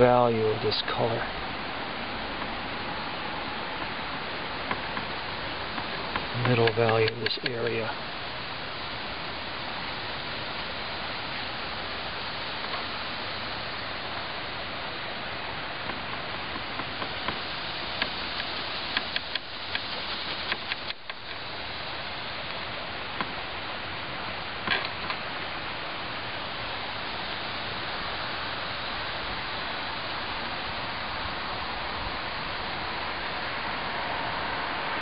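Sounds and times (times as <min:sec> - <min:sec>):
outdoor background hiss: 0:00.0 - 0:35.0
sharp ticks: 0:04.6 - 0:07.9, 0:15.8 - 0:21.5.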